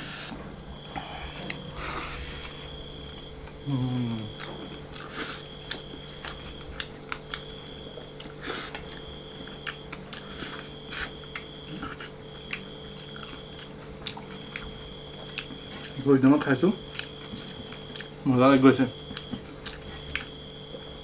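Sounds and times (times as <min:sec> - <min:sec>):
steady low hum: 0:00.0 - 0:21.0
chewing and mouth smacks: 0:04.3 - 0:16.2, 0:16.8 - 0:18.2, 0:18.9 - 0:20.9.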